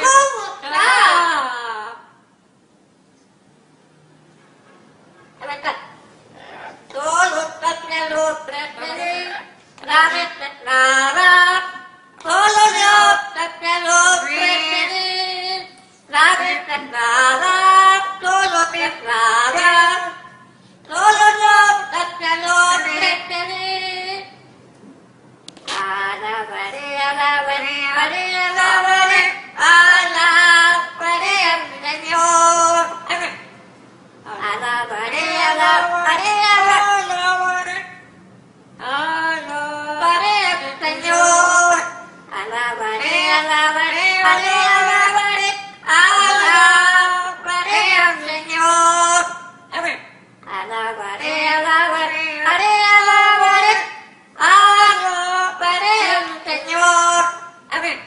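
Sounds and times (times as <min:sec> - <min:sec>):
parrots singing: 0:06.3 - 0:11.3.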